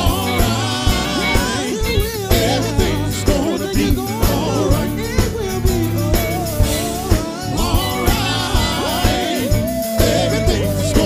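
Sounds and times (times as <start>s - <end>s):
keyboard: 0.0s - 11.0s
person singing: 0.0s - 11.0s
steady drum beat: 0.0s - 11.0s.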